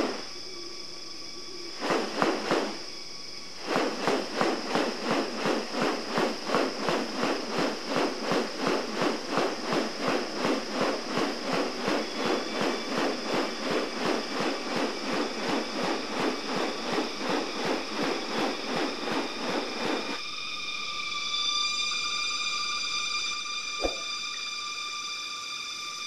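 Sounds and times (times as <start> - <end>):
bird wings rustling swish: 0.0 - 0.3, 1.8 - 2.9, 3.6 - 20.2, 23.8 - 24.2.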